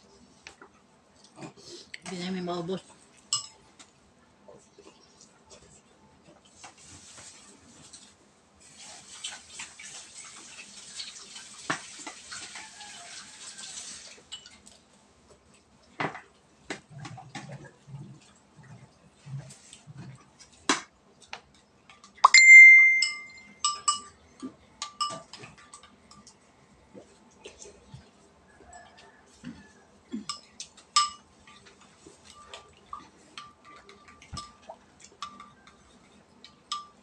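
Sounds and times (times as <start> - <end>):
spoon clinking on plates: 3.3 - 3.6, 22.2 - 26.3, 30.2 - 32.6, 33.4 - 35.8, 36.4 - 37.0.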